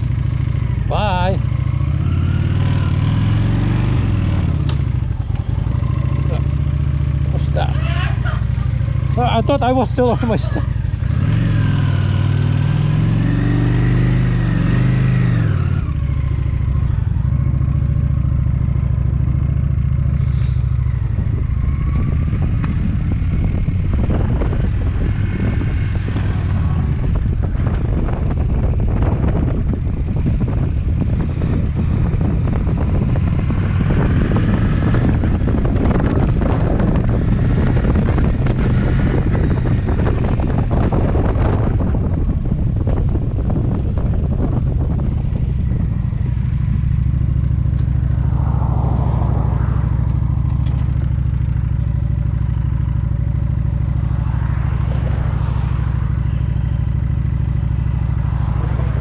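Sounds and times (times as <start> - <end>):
motorcycle engine running: 0.0 - 59.0
wind rushing over microphone: 0.0 - 59.0.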